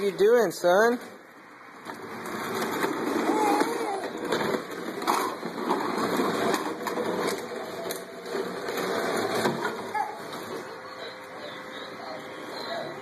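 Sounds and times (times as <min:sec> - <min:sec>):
toy cradle scraping and rattling: 0:01.8 - 0:11.2.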